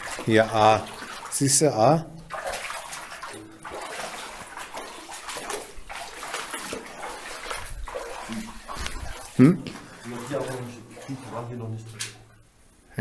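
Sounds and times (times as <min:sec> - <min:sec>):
water splashing and rushing: 0:00.0 - 0:12.3.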